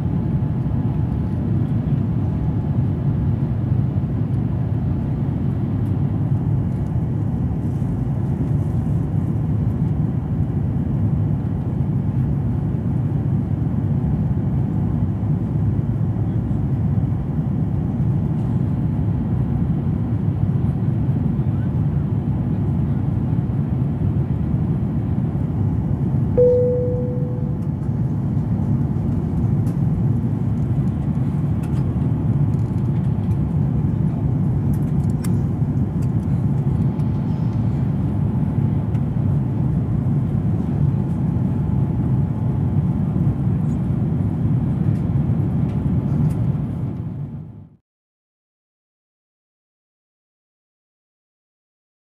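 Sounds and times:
airliner cabin engine rumble: 0:00.0 - 0:47.8
cabin chime: 0:26.4 - 0:27.6.

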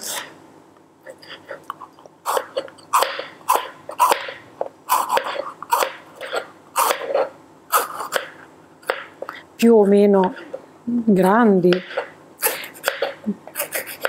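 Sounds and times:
knife slicing pepper on board: 0:02.3 - 0:09.1, 0:11.7 - 0:14.0.

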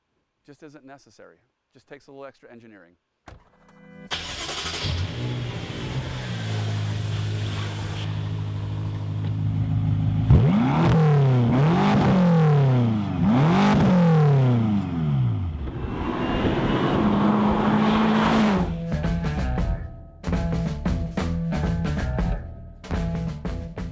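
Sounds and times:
car engine idling and revving: 0:04.1 - 0:19.6.

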